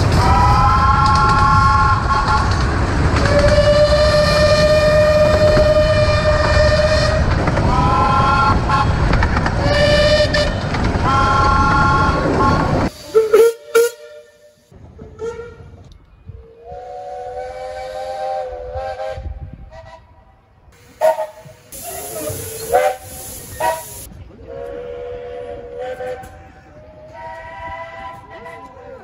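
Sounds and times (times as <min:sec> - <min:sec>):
moving train running noise: 0:00.0 - 0:29.0
steam locomotive chime whistle: 0:09.7 - 0:15.7, 0:20.9 - 0:26.4
steam hiss: 0:12.8 - 0:14.0, 0:20.8 - 0:24.1.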